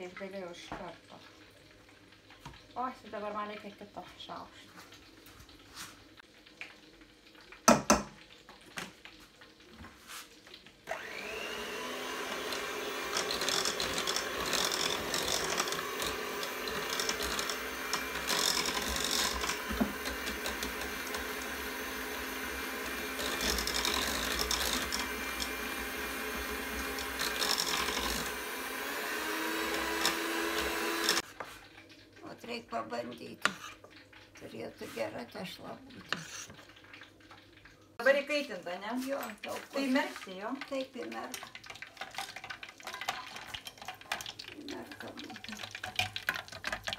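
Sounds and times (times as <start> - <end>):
electric hand mixer whirring: 10.9 - 31.2, 39.5 - 46.9.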